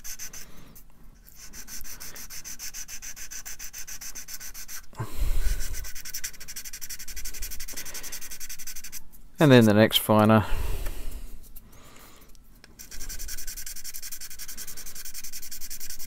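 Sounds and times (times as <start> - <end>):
sanding stick rubbing plastic: 0.0 - 0.5, 1.2 - 9.1, 12.8 - 16.0.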